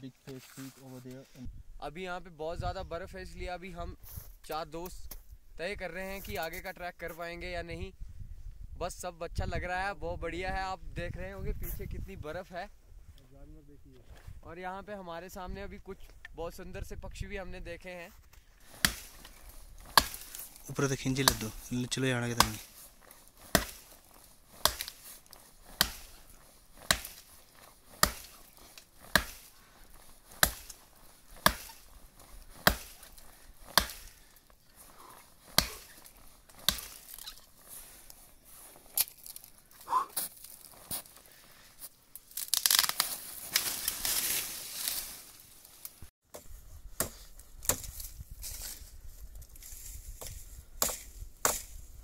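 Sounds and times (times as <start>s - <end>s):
sharp knocks or chops: 21.2s - 21.6s, 27.9s - 28.3s, 29.0s - 29.4s, 30.3s - 30.8s, 31.4s - 31.8s, 32.6s - 33.0s, 33.7s - 34.2s, 35.5s - 35.9s.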